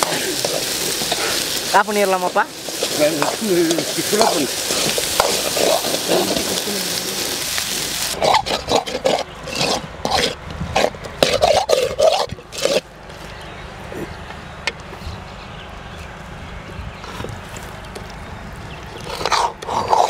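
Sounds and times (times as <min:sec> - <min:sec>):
food sizzling in a pot: 0:00.0 - 0:08.4.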